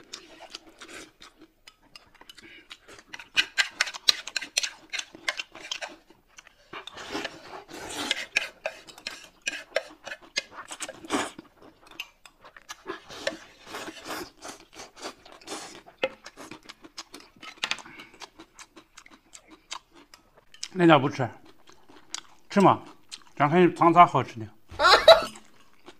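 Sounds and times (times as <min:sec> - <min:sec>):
mouth noises of eating: 0:00.0 - 0:23.8
chopsticks scraping on plate: 0:06.7 - 0:11.0.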